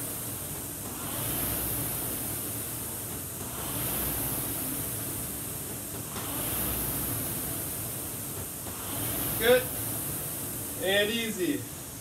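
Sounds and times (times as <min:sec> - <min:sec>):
rowing machine flywheel whooshing: 0:00.0 - 0:12.0.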